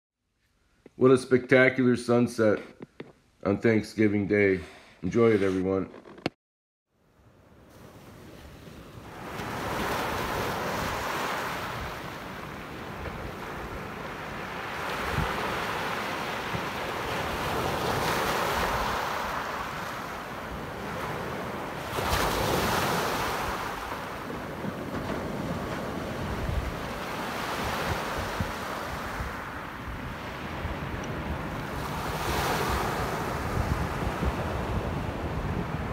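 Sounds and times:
waves washing up gravel beach: 7.7 - 34.6.

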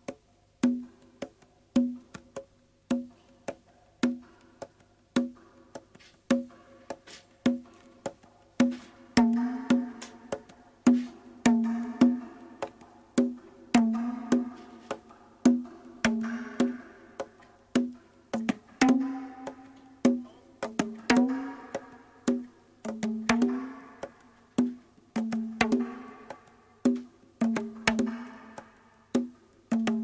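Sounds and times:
percussion hits with pitched ring: 8.7 - 12.6, 13.8 - 17.5, 18.8 - 22.5, 27.7 - 28.9.

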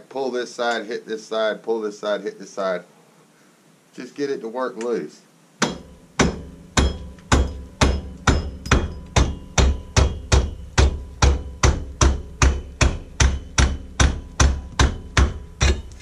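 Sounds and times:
rubber mallet striking wheel hub: 5.6 - 16.0.

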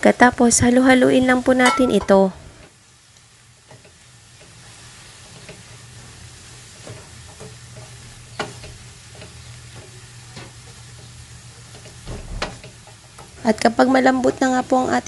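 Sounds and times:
steady low hum: 0.0 - 15.0
stir-fry sizzling in a wok: 0.0 - 15.0
spatula scraping and tapping pan: 3.6 - 13.4.

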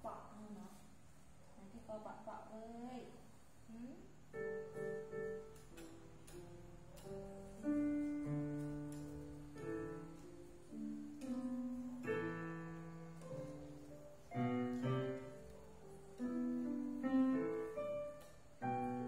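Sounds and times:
electronic keyboard piano chords: 4.3 - 19.0.

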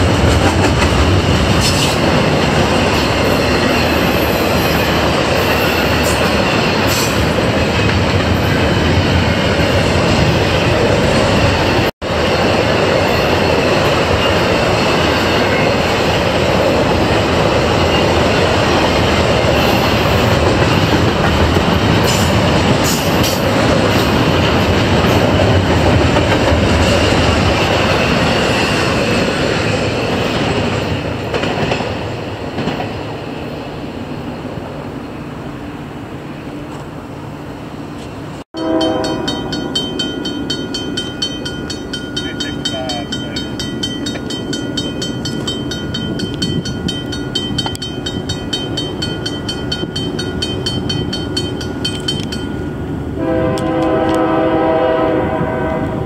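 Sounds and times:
train wheels clacking over rail joints: 0.0 - 9.0, 12.4 - 32.0, 38.8 - 52.6
crossing bell ringing: 2.9 - 16.9, 38.6 - 53.5.

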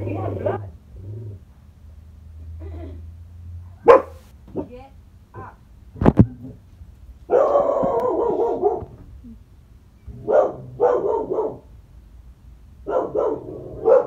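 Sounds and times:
dog barking: 3.8 - 4.7, 7.3 - 9.0, 10.2 - 11.7, 12.8 - 14.0.

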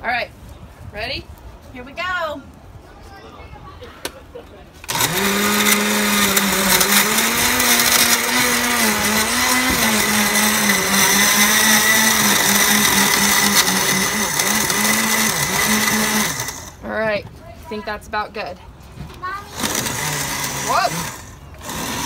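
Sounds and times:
blender motor hum: 4.9 - 16.8, 19.5 - 22.0.

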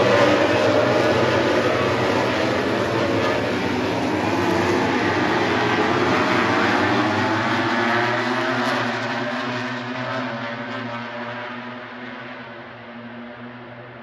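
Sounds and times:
racing motorcycles passing: 0.0 - 10.8.

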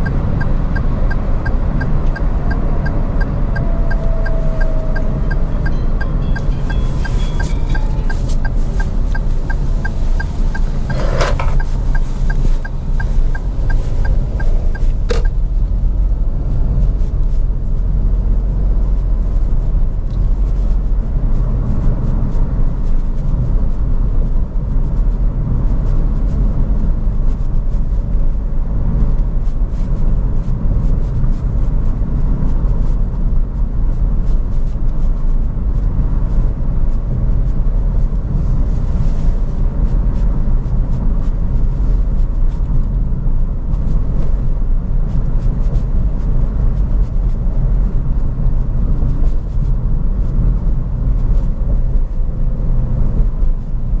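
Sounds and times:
car road and engine rumble: 0.0 - 54.0.

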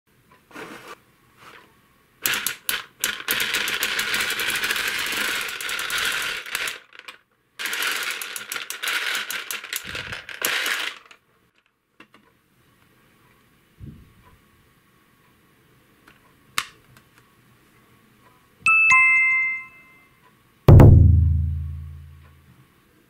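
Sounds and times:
balls clattering in turning drum: 2.3 - 11.2.

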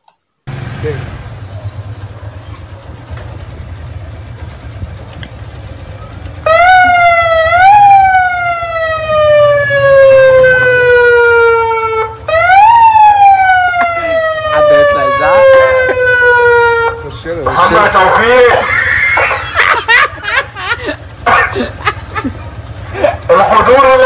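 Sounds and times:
low steady rumble: 0.5 - 24.0
siren-like wail: 6.4 - 17.1.

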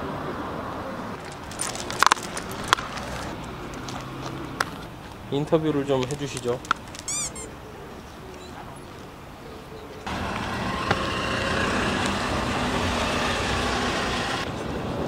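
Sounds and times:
traffic rumble: 0.0 - 15.0.

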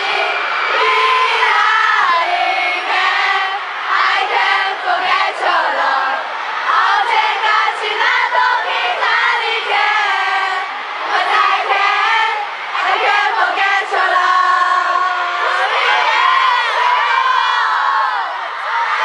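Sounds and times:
crowd of fans screaming: 0.0 - 19.0.

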